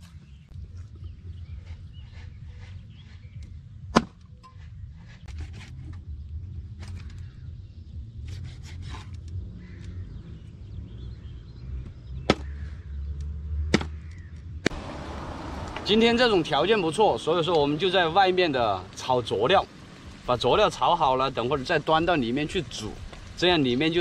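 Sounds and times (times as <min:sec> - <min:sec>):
sharp knife chop: 0:03.9 - 0:04.2, 0:12.3 - 0:12.5, 0:13.7 - 0:14.0.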